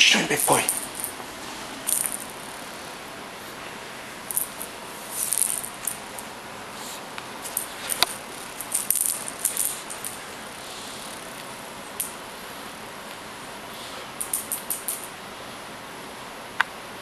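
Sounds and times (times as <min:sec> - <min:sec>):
cat toy rattling and jingling: 0:07.5 - 0:10.2.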